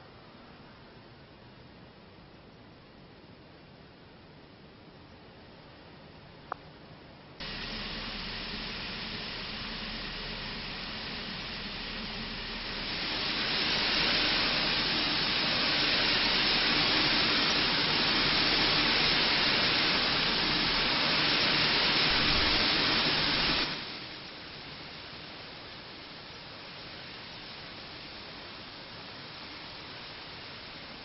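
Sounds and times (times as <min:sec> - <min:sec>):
steam locomotive hissing: 0:07.4 - 0:31.0.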